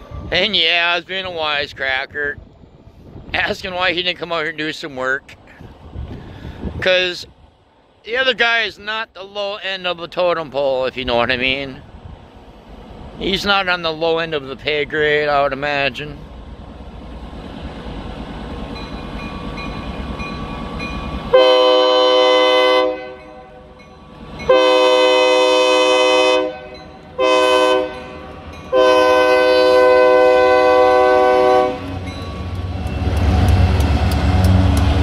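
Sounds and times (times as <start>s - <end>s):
diesel locomotive rumble: 0.0s - 35.0s
locomotive air horn blasts: 21.3s - 23.7s, 24.5s - 32.1s
train wheel clicks: 32.0s - 35.0s.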